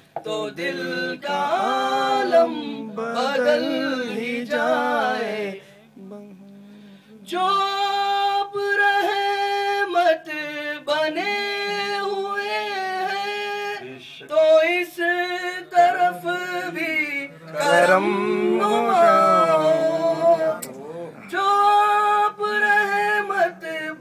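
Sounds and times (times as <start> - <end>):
man singing unaccompanied: 0.1 - 24.0.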